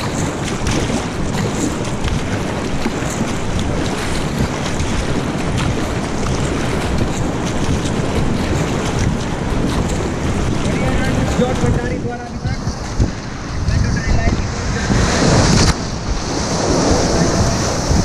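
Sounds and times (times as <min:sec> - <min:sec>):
paddle strokes splashing: 0:00.0 - 0:18.0
rushing river water: 0:00.0 - 0:18.0
wind rumble on microphone: 0:00.0 - 0:18.0.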